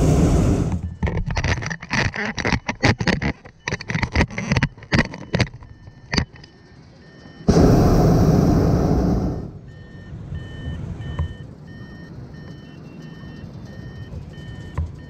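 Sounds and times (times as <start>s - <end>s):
propane burner blast: 0.0s - 0.8s, 7.5s - 9.7s
short electronic beeps: 4.6s - 7.6s, 9.0s - 15.0s.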